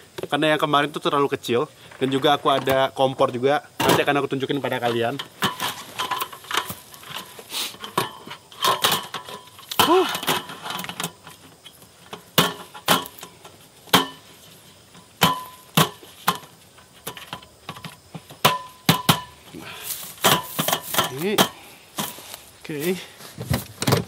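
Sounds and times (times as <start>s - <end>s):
metal slat table clattering: 4.8s - 11.2s, 12.1s - 13.3s, 13.9s - 14.2s, 20.2s - 21.6s.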